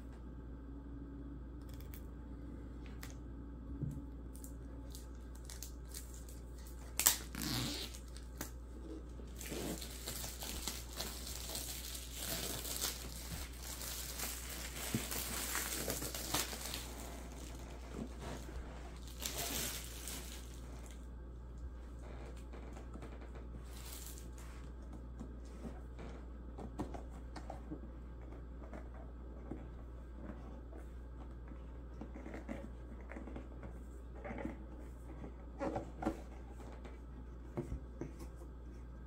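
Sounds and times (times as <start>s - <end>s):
plastic shrink wrap crinkling: 4.3s - 21.1s, 21.9s - 24.8s.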